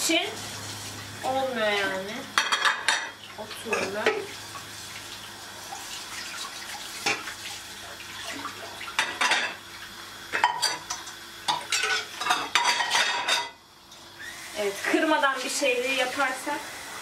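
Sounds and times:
dishes clattering in sink: 2.4s - 4.3s, 7.0s - 7.4s, 8.2s - 9.6s, 10.3s - 13.6s.

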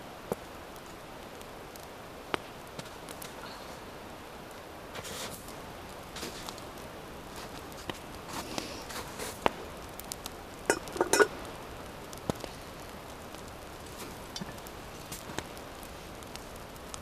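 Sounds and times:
metal cookware clinking: 10.7s - 11.3s.

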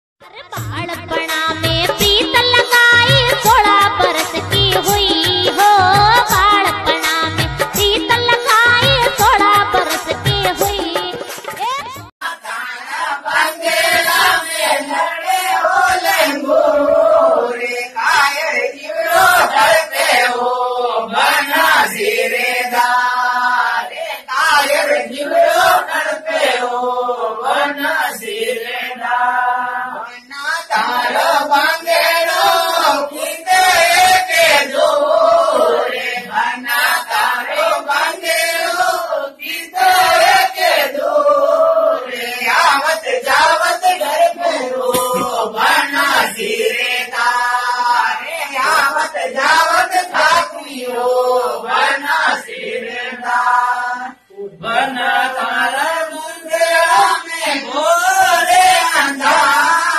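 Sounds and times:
chant-like singing: 12.2s - 59.9s.

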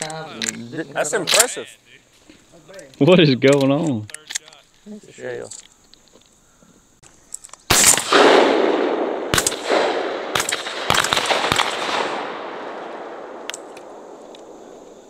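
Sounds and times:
shotgun blasts with echo: 7.7s - 14.8s.

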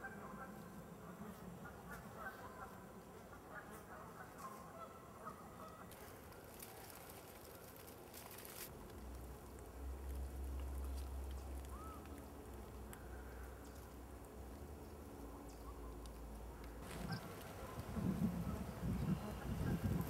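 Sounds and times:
crackly rustling: 5.6s - 19.0s
low rumble on microphone: 16.8s - 20.0s.

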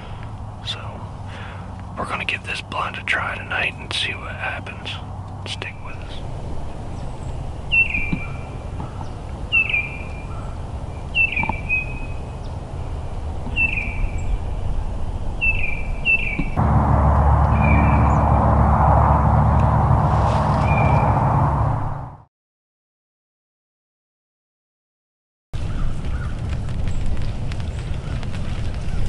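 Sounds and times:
steady rushing noise with hum: 16.6s - 22.3s
bird calling falling note: 20.4s - 21.3s.

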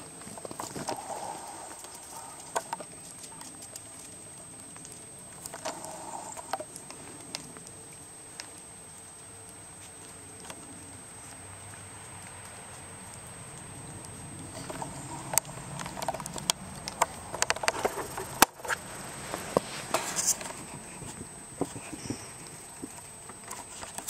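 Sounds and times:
footsteps crunching on snow: 17.8s - 22.9s.

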